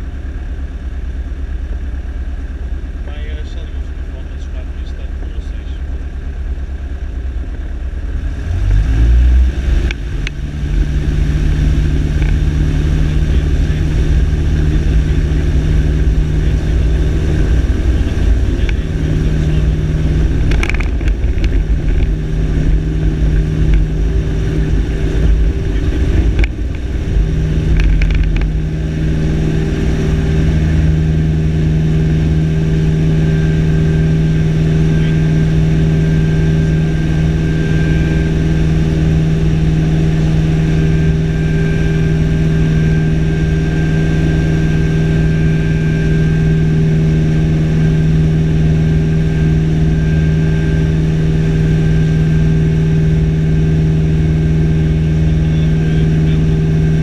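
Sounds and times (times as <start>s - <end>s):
light aircraft engine and propeller: 0.0s - 57.0s.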